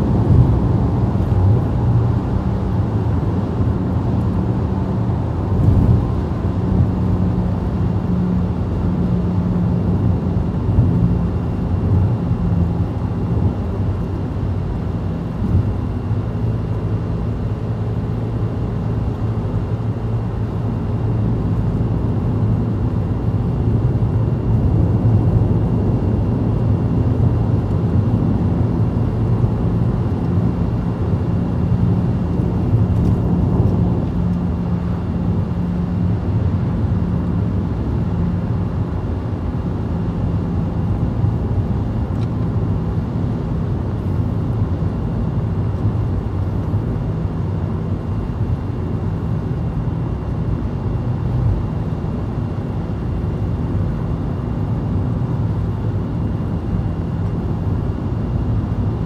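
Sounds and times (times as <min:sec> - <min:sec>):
car engine hum: 0:00.0 - 0:47.2
road rumble: 0:00.0 - 0:51.6.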